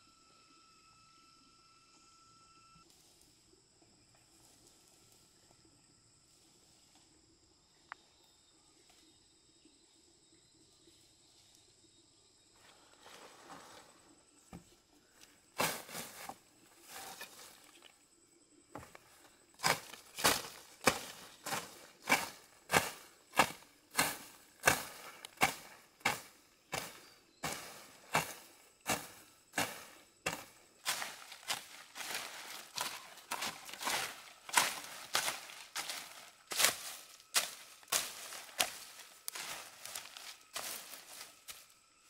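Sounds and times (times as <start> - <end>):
faint high whine: 0.0 - 3.5
rustling: 18.8 - 41.7
loud short crunching strokes: 19.6 - 41.7.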